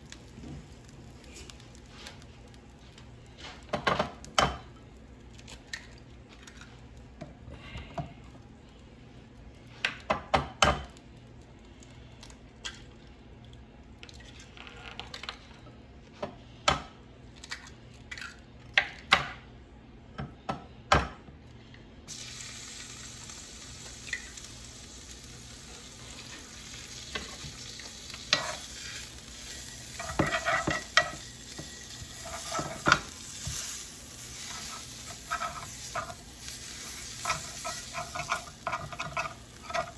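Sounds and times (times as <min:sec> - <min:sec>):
skillet sizzling: 0:22.1 - 0:39.9.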